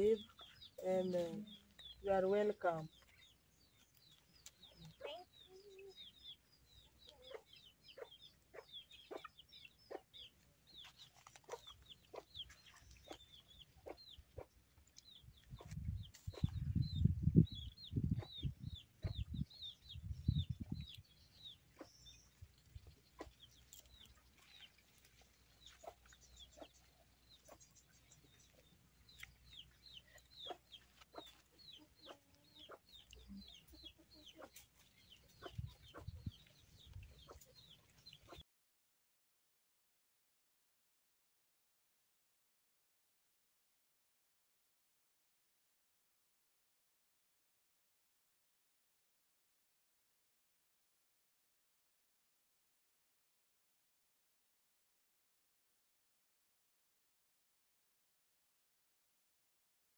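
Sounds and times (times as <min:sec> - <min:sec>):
chickens clucking: 0:00.0 - 0:38.4.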